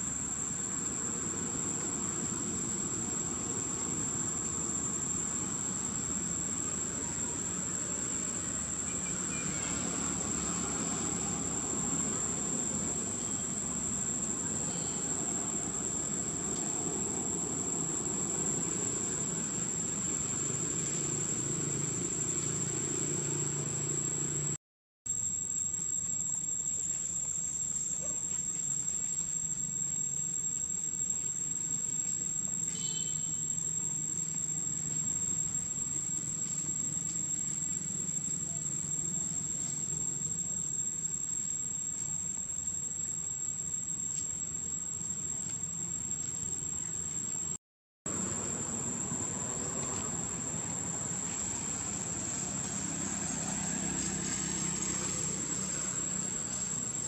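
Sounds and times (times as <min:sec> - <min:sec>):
high-pitched insect buzz: 0:31.9 - 0:38.6.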